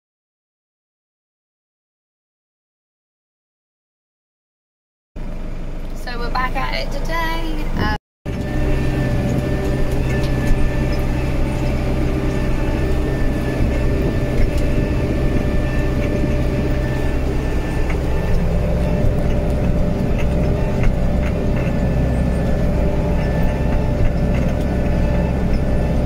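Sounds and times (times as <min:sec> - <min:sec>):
high whine: 0:05.2 - 0:26.0
tractor engine running under load: 0:05.2 - 0:26.0.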